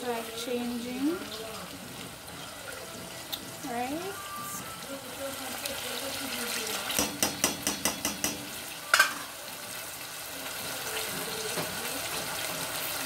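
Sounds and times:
chicken sizzling in pot: 0:00.0 - 0:13.0
spoon knocking pot: 0:07.0 - 0:09.2.

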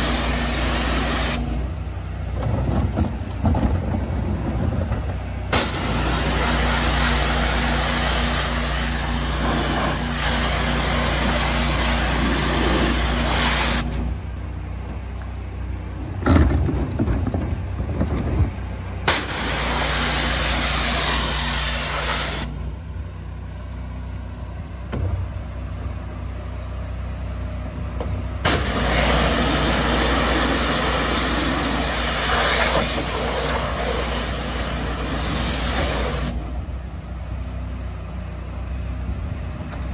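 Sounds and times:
pressure washer running: 0:00.0 - 0:01.8, 0:05.5 - 0:14.5, 0:19.0 - 0:22.7, 0:28.4 - 0:36.6.

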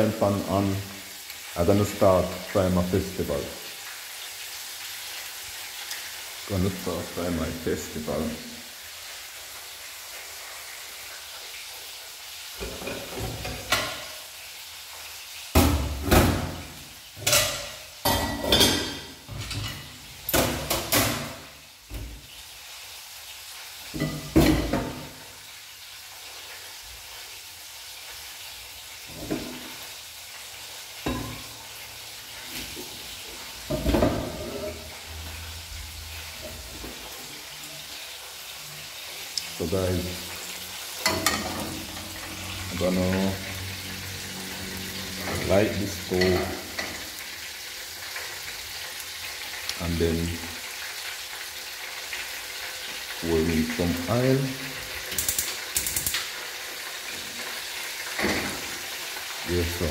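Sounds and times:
chicken sizzling in hot oil: 0:00.0 - 0:59.9.

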